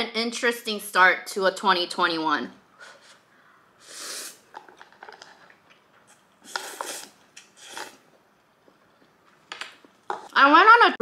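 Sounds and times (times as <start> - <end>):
person slurping noodles: 3.8 - 4.6, 6.4 - 8.1.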